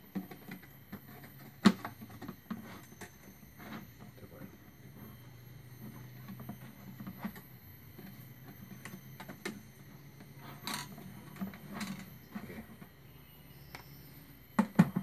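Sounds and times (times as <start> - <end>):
steady low hum: 0.0 - 15.0
wire scraping on plastic: 0.1 - 4.2, 5.7 - 13.0.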